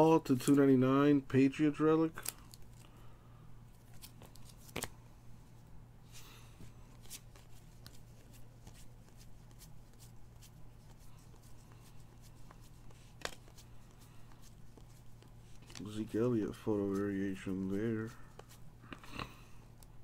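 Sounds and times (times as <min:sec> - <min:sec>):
cards flicked clicking and sliding: 0:02.1 - 0:02.9, 0:03.8 - 0:05.0, 0:06.9 - 0:16.0
card rustle: 0:02.1 - 0:03.0, 0:03.7 - 0:05.0, 0:06.1 - 0:19.1
card snapping: 0:03.9 - 0:05.0.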